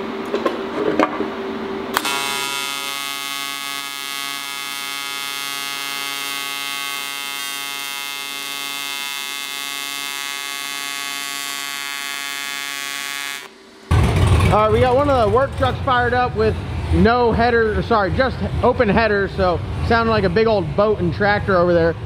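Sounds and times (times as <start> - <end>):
arc welder buzzing: 1.9 - 14.0.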